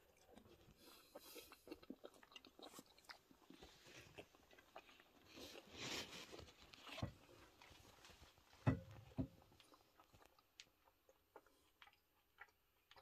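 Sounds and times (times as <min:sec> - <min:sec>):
person chewing: 0:00.0 - 0:13.0
rustle: 0:05.4 - 0:07.0.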